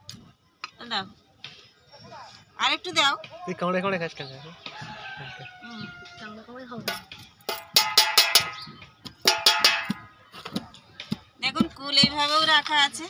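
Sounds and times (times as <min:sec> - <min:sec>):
wooden pestle knocking on plate: 0:06.9 - 0:10.1.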